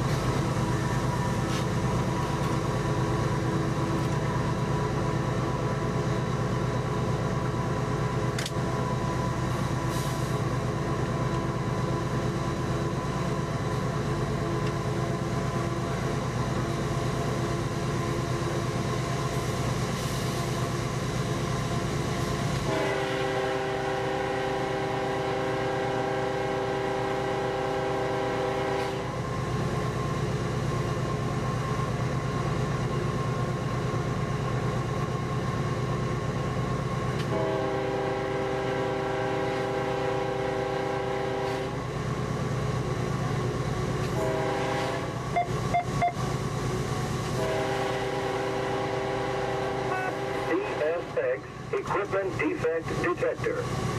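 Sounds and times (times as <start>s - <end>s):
locomotive rumble on rails: 0.0s - 53.9s
locomotive air horn blasts: 22.6s - 29.1s, 37.2s - 41.8s, 44.1s - 46.1s, 47.3s - 51.0s.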